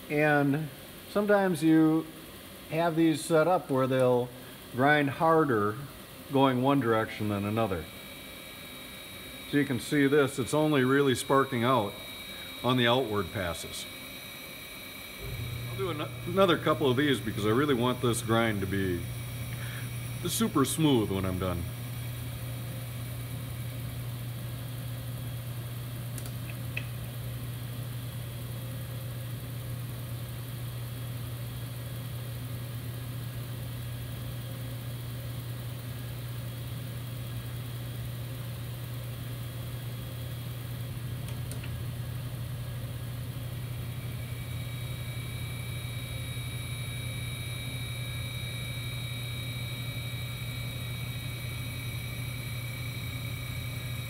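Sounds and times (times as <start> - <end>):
grinding machine humming: 4.7 - 26.1, 41.8 - 54.0
thin high whine: 4.8 - 24.4, 43.7 - 54.0.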